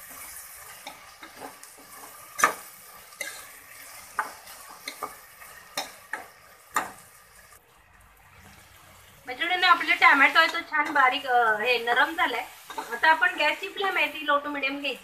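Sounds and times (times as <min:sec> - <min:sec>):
metal spatula scraping a pot: 0:00.0 - 0:07.0, 0:12.5 - 0:13.1
faint steady sizzle: 0:00.0 - 0:15.0.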